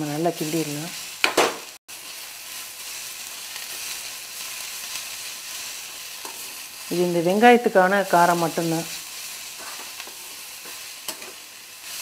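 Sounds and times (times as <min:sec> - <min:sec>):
onions sizzling in oil: 0:00.0 - 0:12.0
metal spatula stirring: 0:09.4 - 0:11.5.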